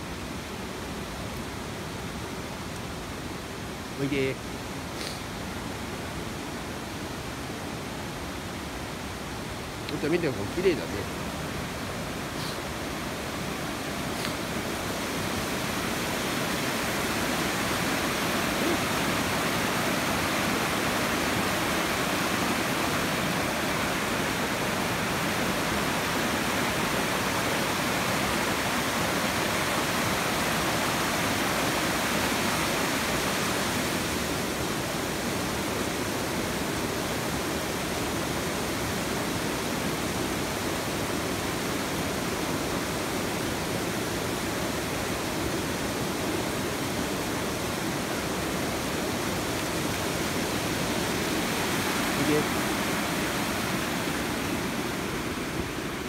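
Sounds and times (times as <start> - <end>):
stream rushing over rocks: 0.0 - 56.0.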